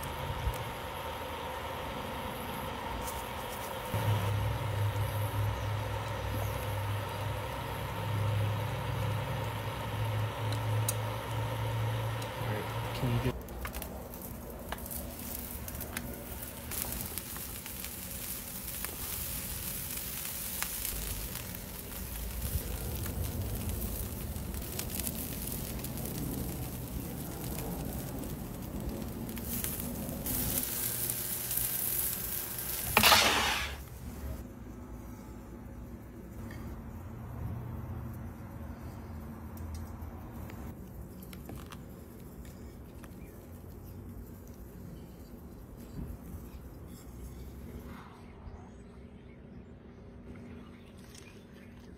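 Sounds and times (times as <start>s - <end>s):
steady hum: 0.0s - 13.4s
food sizzling on a griddle: 0.0s - 33.9s.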